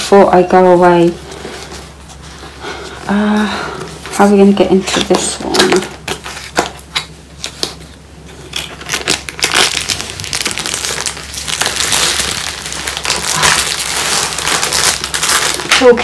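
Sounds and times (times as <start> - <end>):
cardboard and plastic crinkling: 4.0 - 16.0.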